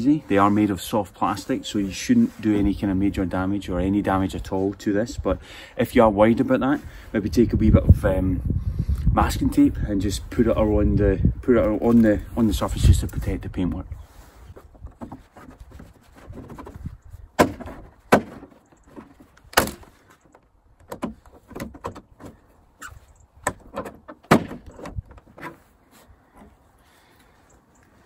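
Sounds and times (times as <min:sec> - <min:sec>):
tool scraping plastic: 0:14.4 - 0:25.7.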